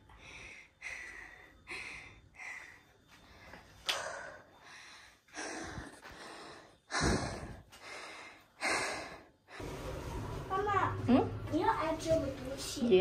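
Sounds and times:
person breathing hard: 0.0 - 9.7.

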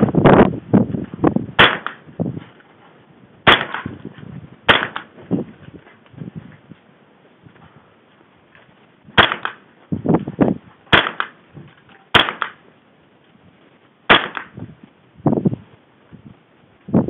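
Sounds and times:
rifle shots with echo: 1.6 - 2.0, 3.4 - 4.0, 4.7 - 5.2, 9.2 - 9.6, 10.9 - 11.4, 12.1 - 12.6, 14.1 - 14.6.

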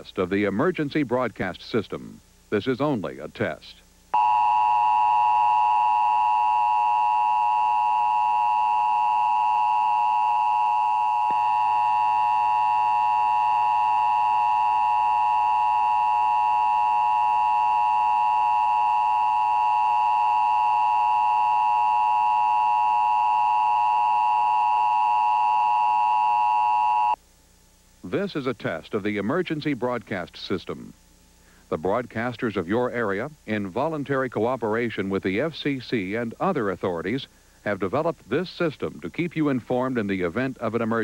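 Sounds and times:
harsh steady two-tone alert: 4.2 - 27.2.

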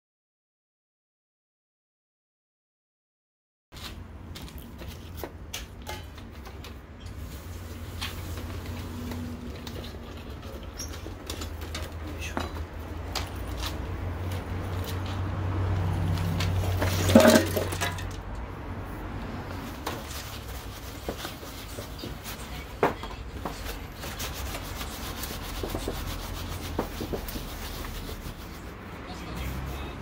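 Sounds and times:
scrubbing metal plates: 16.6 - 18.2
metal clatter: 16.8 - 18.3.

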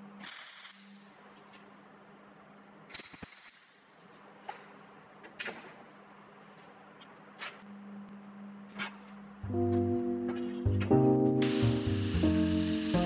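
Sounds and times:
welding arc: 0.2 - 1.1, 2.9 - 3.7, 11.4 - 13.0
music: 9.4 - 13.0.

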